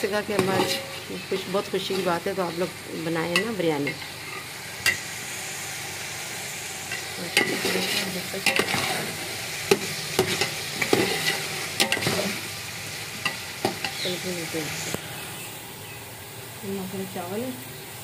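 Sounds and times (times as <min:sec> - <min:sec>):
curry sizzling in a pot: 0:00.0 - 0:18.0
metal spatula scraping a pot: 0:00.3 - 0:02.6, 0:03.3 - 0:05.0, 0:06.9 - 0:12.4.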